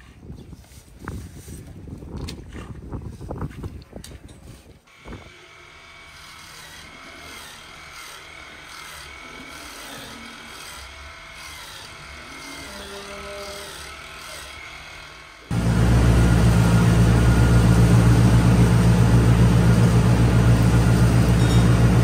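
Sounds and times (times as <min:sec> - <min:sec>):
electric grinder whining: 0:04.9 - 0:22.0.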